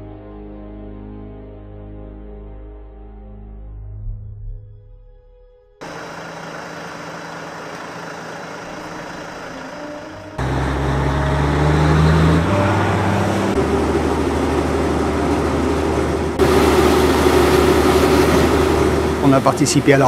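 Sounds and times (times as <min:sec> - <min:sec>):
diesel engine running and revving: 0:05.8 - 0:20.0.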